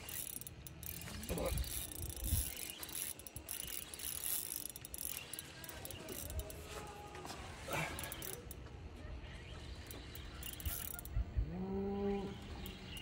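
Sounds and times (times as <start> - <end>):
fishing reel clicking and whirring: 0.0 - 6.8, 7.8 - 8.6, 9.7 - 11.2, 12.3 - 13.0.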